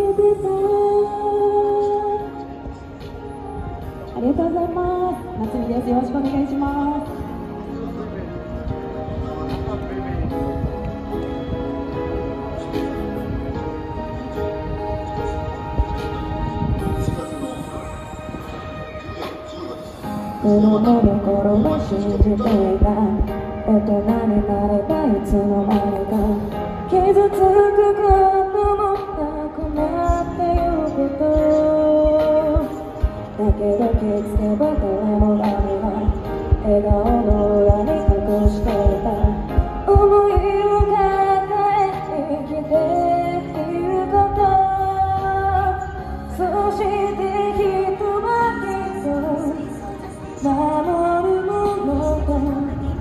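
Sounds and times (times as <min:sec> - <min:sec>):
woman singing into microphone: 0:00.0 - 0:07.5, 0:20.3 - 0:53.0
quiet backing accompaniment: 0:00.0 - 0:53.0
backing track with beat: 0:18.4 - 0:42.1.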